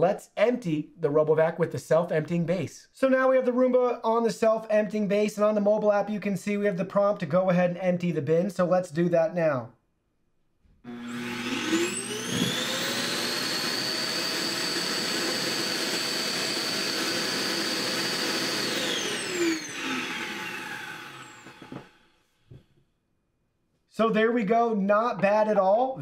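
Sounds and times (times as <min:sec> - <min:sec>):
vacuum suction motor whine: 0:10.9 - 0:22.1.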